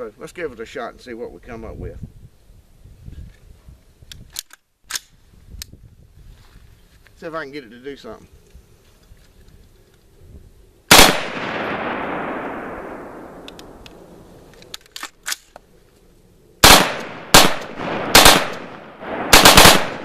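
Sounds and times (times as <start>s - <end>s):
rapid rifle fire bursts: 10.9s - 12.4s, 16.6s - 20.0s
rifle shots with echo: 10.9s - 14.5s, 16.6s - 20.0s.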